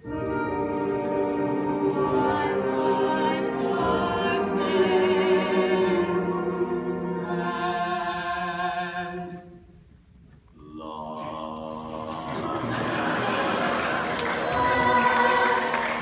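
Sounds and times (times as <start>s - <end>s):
man singing operatic style: 10.6s - 12.9s.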